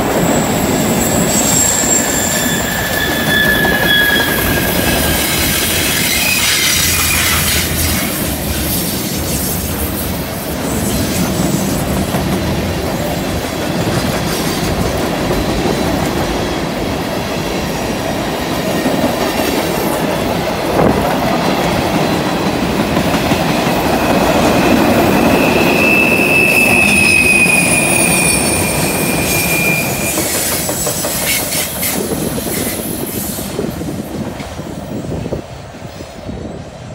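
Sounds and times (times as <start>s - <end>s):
train wheels rumbling on rails: 0.0s - 36.9s
high-pitched wheel squeal: 0.2s - 8.2s, 24.5s - 32.8s.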